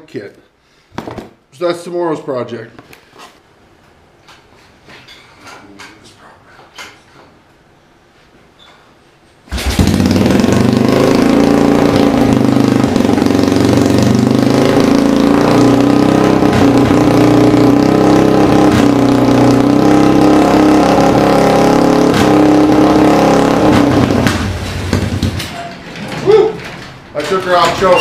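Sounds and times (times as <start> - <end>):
single-cylinder engine running: 9.5 - 25.5.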